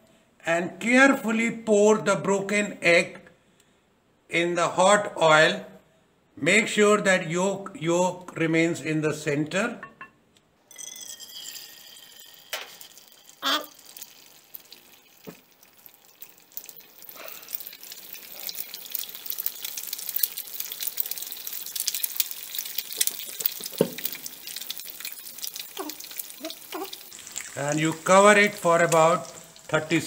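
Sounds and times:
egg sizzling in hot oil: 0:10.7 - 0:30.0.

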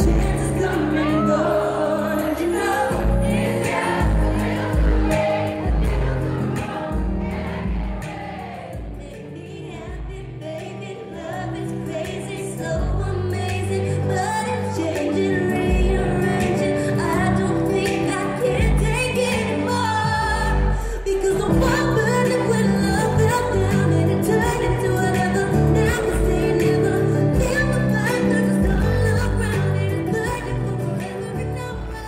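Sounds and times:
live pop concert music: 0:00.0 - 0:32.0
woman singing: 0:00.0 - 0:32.0
deep bass notes pulsing: 0:02.9 - 0:09.0.

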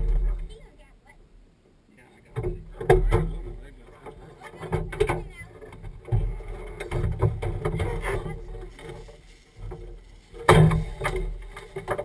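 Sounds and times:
knocks and clatter: 0:02.3 - 0:12.0
loud thump: 0:10.4 - 0:12.0.

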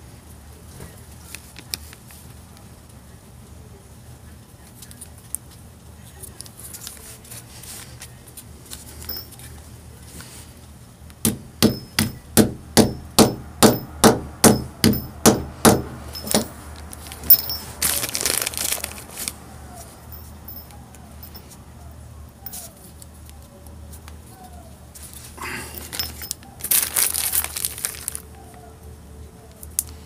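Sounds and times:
hammer tapping metal rivet: 0:11.2 - 0:16.5.

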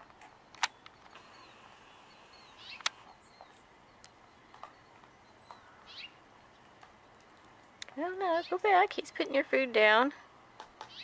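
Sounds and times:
sharp clicks: 0:00.2 - 0:01.4, 0:02.6 - 0:03.1
high bird chirps: 0:00.7 - 0:06.6.

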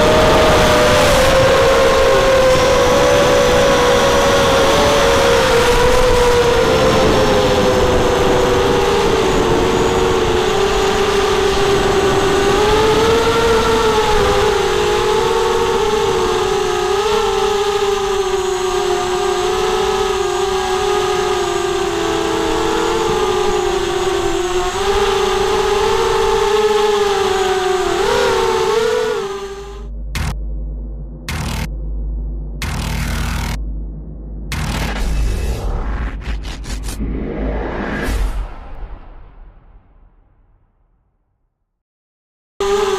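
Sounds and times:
wind on microphone: 0:00.0 - 0:30.3
quadcopter motors whining: 0:00.0 - 0:30.4, 0:31.3 - 0:31.7, 0:32.6 - 0:33.6, 0:34.5 - 0:37.0, 0:42.6 - 0:42.9.

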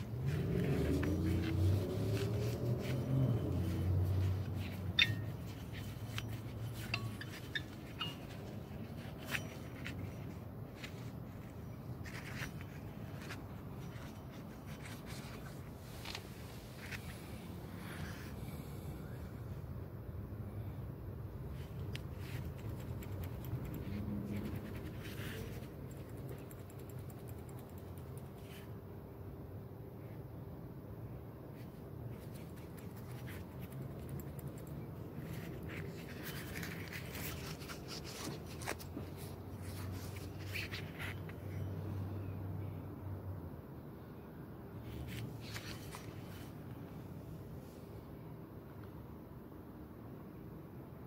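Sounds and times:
pulley whirring: 0:00.0 - 0:10.0
scratchy handling noise: 0:00.0 - 0:18.4, 0:21.4 - 0:28.8, 0:31.5 - 0:41.7, 0:44.8 - 0:47.2
low steady rumble: 0:00.0 - 0:42.2
fast faint clicks: 0:21.8 - 0:28.6, 0:32.2 - 0:37.5.

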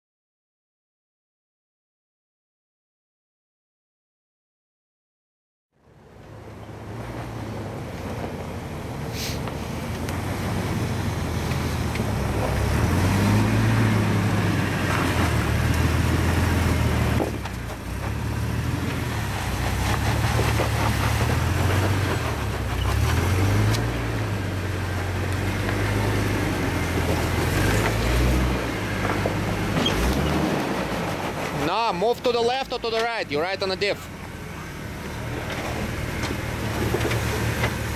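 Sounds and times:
car engine revving under load: 0:06.5 - 0:33.0.

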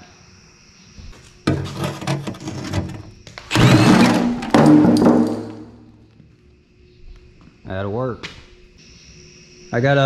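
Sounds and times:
hand tools scraping on metal: 0:01.5 - 0:05.5.

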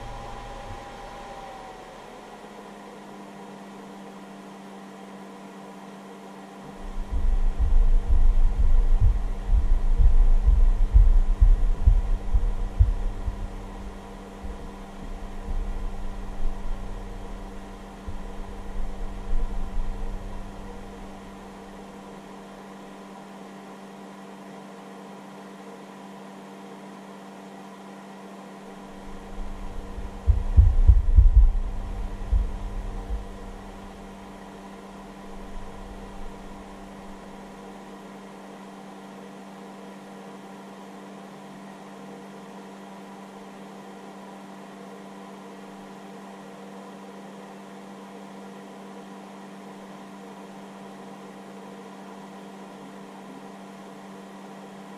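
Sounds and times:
electrical hum and fan noise: 0:00.0 - 0:54.9
low dull thuds: 0:06.8 - 0:21.0, 0:29.0 - 0:34.0.

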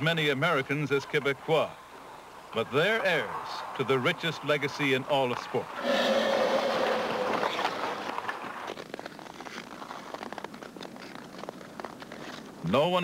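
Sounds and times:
ice skate blades scraping ice: 0:05.8 - 0:12.5.

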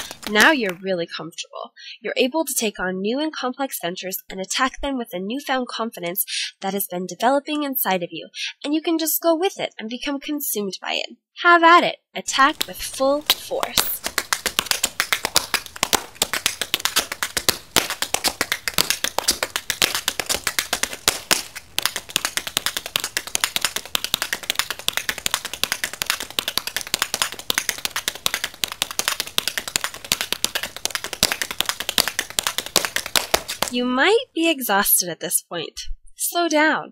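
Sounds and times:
tap shoes on concrete: 0:00.0 - 0:00.8, 0:12.4 - 0:33.8.

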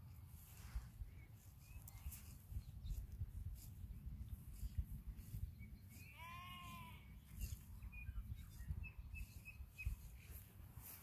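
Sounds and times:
high bird chirps: 0:05.2 - 0:10.5
sheep bleating: 0:06.1 - 0:07.1.

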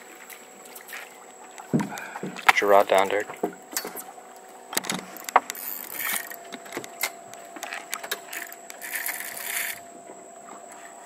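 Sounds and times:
faint steady hum: 0:00.0 - 0:11.0
knocks and clicks of gear on deck: 0:04.7 - 0:08.8.

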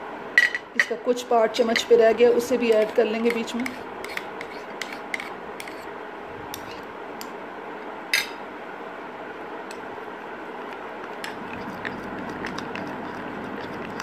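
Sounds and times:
steady background noise: 0:00.0 - 0:14.0
metal spoon scraping glass bowl: 0:02.7 - 0:05.9, 0:06.6 - 0:06.8.

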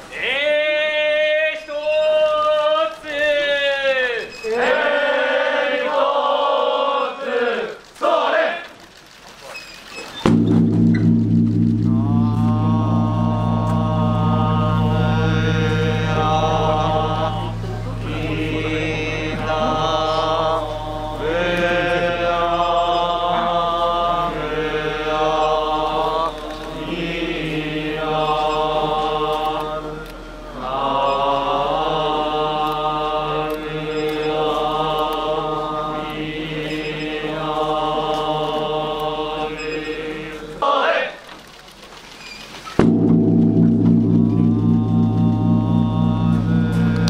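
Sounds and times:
steady low hum: 0:10.3 - 0:36.1, 0:42.8 - 0:47.0
monks chanting in unison: 0:13.2 - 0:41.2.

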